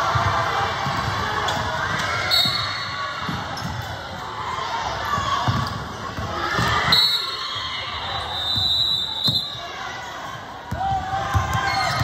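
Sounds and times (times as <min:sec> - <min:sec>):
crowd noise: 0:00.0 - 0:12.0
basketball bouncing on gym floor: 0:05.2 - 0:06.9, 0:10.7 - 0:12.0.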